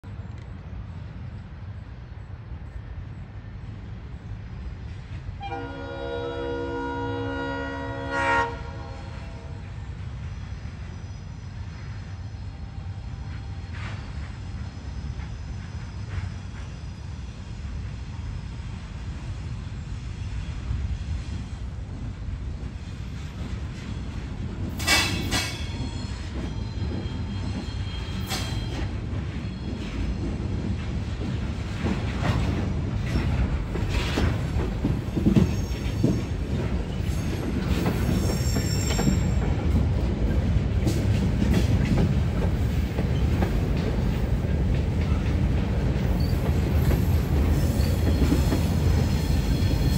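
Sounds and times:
diesel locomotives rumbling: 0:00.0 - 0:49.9
wheels clattering on rails: 0:21.9 - 0:49.9
wheel squeal: 0:24.8 - 0:30.1, 0:35.2 - 0:39.4.

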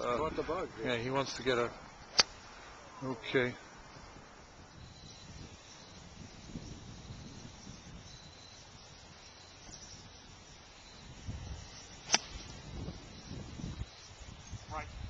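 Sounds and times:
faint steady hiss: 0:00.0 - 0:15.0
golf club striking ball: 0:02.0 - 0:02.5, 0:11.9 - 0:12.7.

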